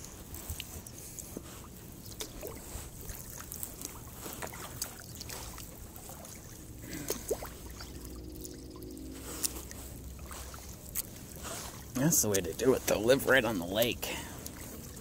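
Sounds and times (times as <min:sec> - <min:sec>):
paddle splashing in water: 0:00.0 - 0:15.0
water dripping off paddle: 0:00.0 - 0:15.0.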